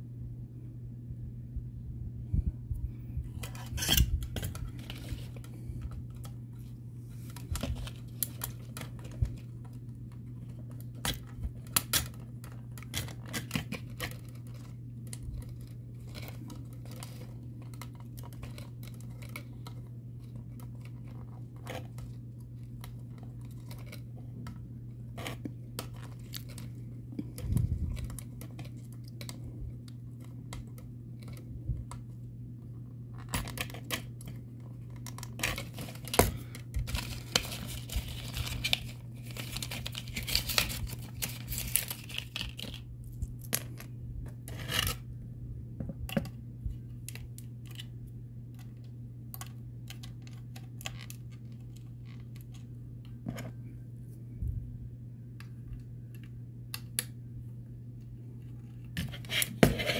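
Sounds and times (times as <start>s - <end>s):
steady low hum: 0.0s - 59.9s
plastic packaging crinkling: 3.4s - 31.4s, 33.2s - 43.8s.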